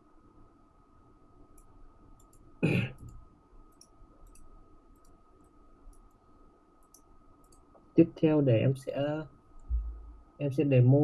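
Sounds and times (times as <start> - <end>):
computer mouse clicks: 1.5 - 6.2, 6.8 - 7.8.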